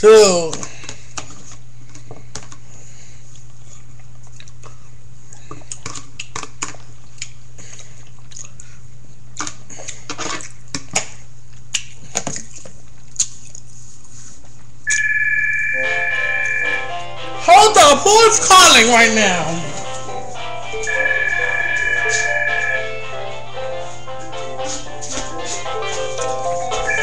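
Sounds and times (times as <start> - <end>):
chewing: 3.3 - 10.6, 11.5 - 13.7
two-tone phone ringtone: 14.9 - 17.0, 20.9 - 23.1.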